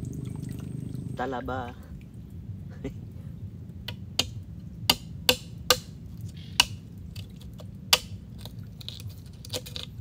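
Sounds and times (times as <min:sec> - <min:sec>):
machete cracking oyster shell: 0:06.6 - 0:10.0.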